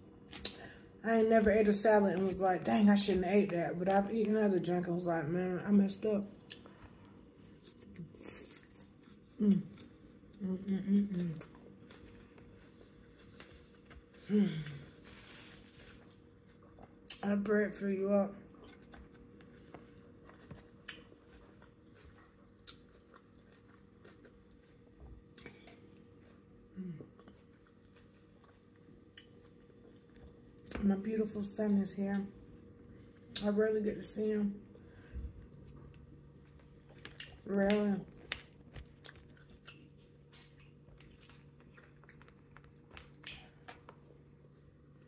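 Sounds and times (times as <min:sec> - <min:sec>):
chewing with soft crunches: 0:06.3 - 0:17.2, 0:18.3 - 0:30.8, 0:34.6 - 0:45.0.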